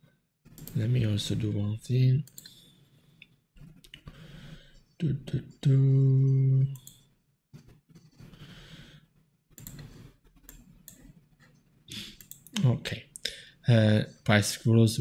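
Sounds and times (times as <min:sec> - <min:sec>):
computer mouse clicks: 0:00.5 - 0:00.9, 0:06.7 - 0:08.3, 0:09.5 - 0:12.7
soft breaths: 0:02.4 - 0:05.0, 0:08.0 - 0:10.3.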